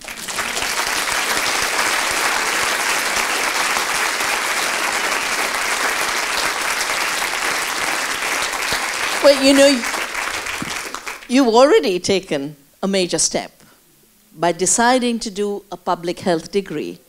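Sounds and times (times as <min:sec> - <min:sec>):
people applauding: 0:00.0 - 0:11.3.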